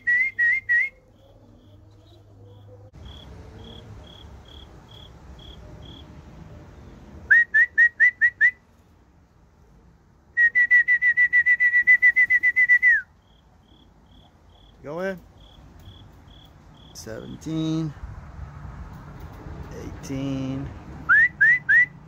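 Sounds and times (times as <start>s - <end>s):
person whistling: 0.0s - 1.0s, 7.3s - 8.6s, 10.4s - 13.1s, 21.1s - 22.0s.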